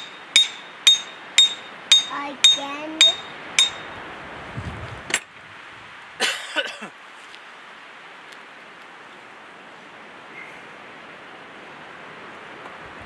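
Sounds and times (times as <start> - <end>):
hammer striking metal: 0.0 - 4.0.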